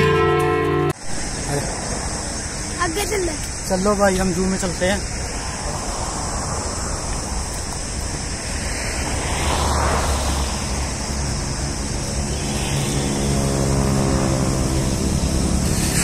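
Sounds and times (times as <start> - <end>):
vehicle passing by: 4.4 - 16.0.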